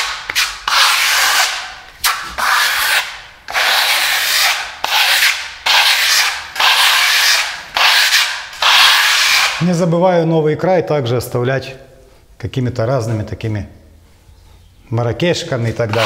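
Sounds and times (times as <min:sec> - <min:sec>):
trowel scraping across wall: 0:00.0 - 0:09.6, 0:15.8 - 0:16.0.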